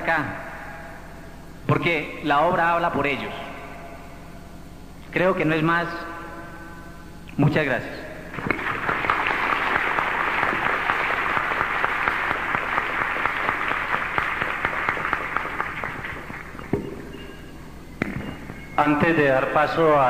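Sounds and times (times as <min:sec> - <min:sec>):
audience applauding: 0:08.4 - 0:17.2.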